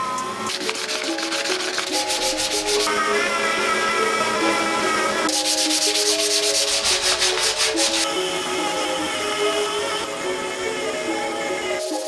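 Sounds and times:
background music with melody: 0:00.0 - 0:12.0
rasping sanding strokes on metal: 0:00.5 - 0:02.9, 0:05.3 - 0:08.1.

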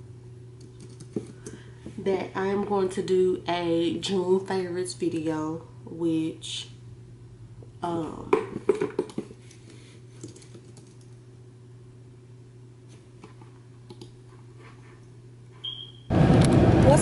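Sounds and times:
steady low hum: 0:00.0 - 0:17.0
short high beep: 0:15.6 - 0:16.1.

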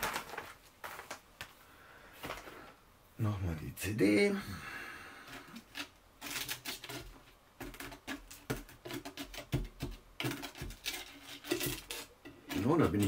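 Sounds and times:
disc scraping damp sand: 0:05.1 - 0:13.0.

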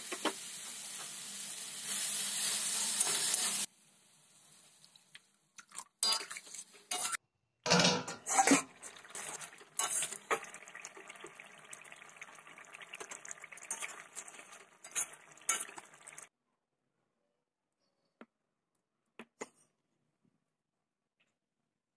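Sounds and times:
metal pot lid clanking: 0:06.9 - 0:10.5
curry bubbling in a pot: 0:08.4 - 0:16.3.

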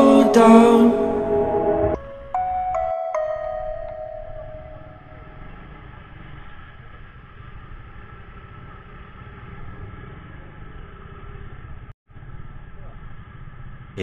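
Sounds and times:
road noise: 0:02.8 - 0:14.0
vehicle engine rumbling: 0:03.8 - 0:14.0.

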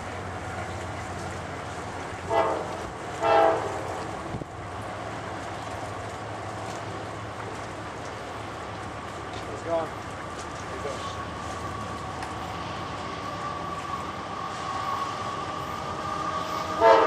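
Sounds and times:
locomotive air horn blasts: 0:02.3 - 0:03.8, 0:16.6 - 0:17.0.

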